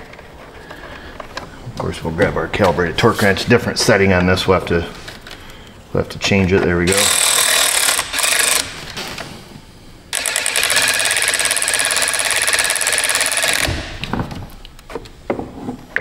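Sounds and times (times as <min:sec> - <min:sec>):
powered torque wrench chattering: 0:06.9 - 0:08.9, 0:10.1 - 0:14.0.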